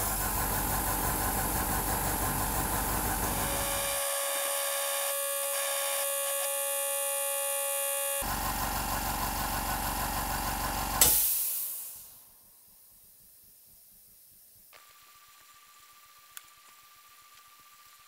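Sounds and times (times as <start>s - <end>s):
air compressor running: 0.0s - 12.1s
compressor cut-out click and burst: 10.9s - 12.1s.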